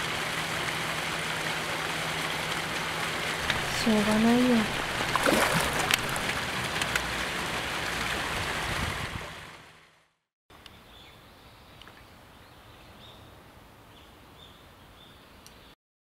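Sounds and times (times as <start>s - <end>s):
running water splashing: 1.7s - 9.0s.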